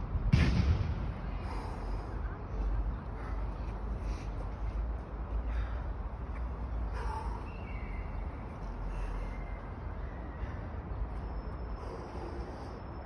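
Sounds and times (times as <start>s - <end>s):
low urban rumble: 0.0s - 13.0s.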